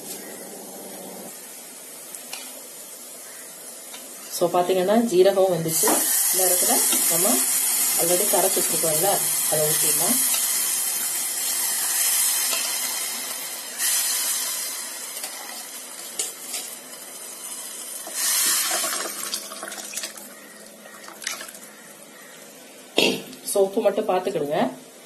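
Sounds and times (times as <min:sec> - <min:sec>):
liquid hissing in hot oil: 0:05.6 - 0:20.1.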